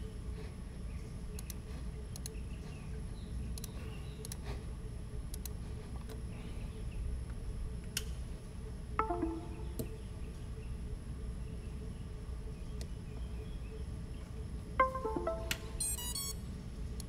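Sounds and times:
low room hum: 0.0 - 17.0
computer mouse clicking: 1.3 - 2.4, 3.6 - 4.4, 5.3 - 6.2.

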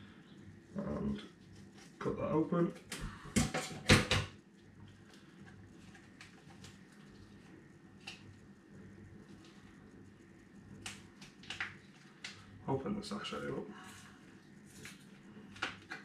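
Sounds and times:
faint steady hum: 0.0 - 16.0
small rustle: 0.6 - 2.7, 4.6 - 12.6.

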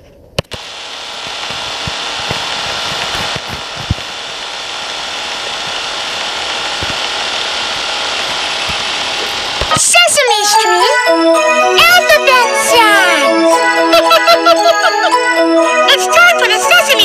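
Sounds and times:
sharp click: 0.4 - 0.6
static hiss: 0.4 - 10.0.

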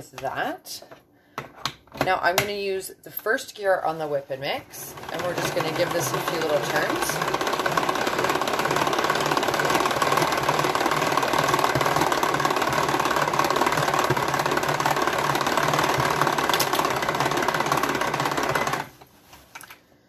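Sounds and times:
hand-cranked mixer whirring: 4.7 - 19.0.

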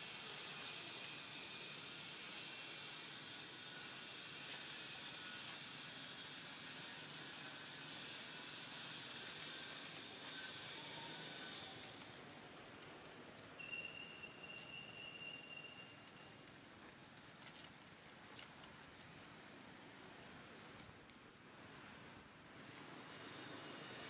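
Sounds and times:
faint steady hiss: 0.0 - 24.0
high-pitched whine: 13.4 - 16.5
brief higher tone: 13.6 - 16.0.

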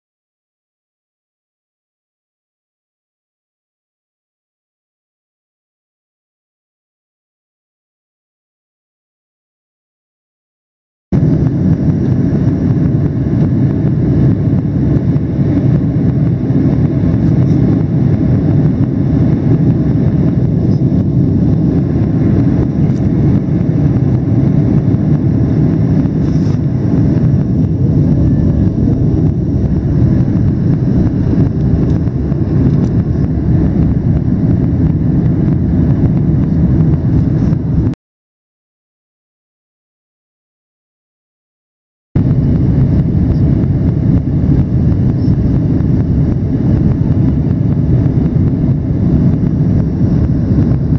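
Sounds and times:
air rushing past fuselage: 11.2 - 38.0
airliner engines rumbling: 11.2 - 38.0, 42.2 - 50.9.

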